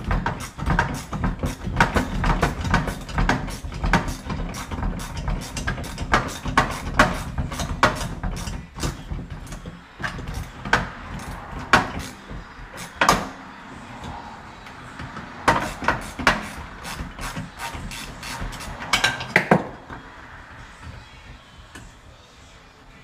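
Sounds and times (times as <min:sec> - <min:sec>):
hand tools clicking on metal: 0:00.0 - 0:13.3, 0:15.0 - 0:19.6.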